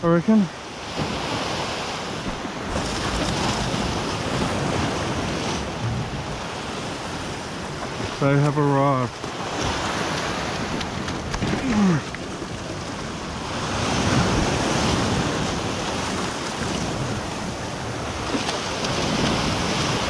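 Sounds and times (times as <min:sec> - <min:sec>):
waves breaking against rocks: 0:00.0 - 0:20.0
wind buffeting microphone: 0:00.8 - 0:20.0
low vocal grunt: 0:11.6 - 0:12.1.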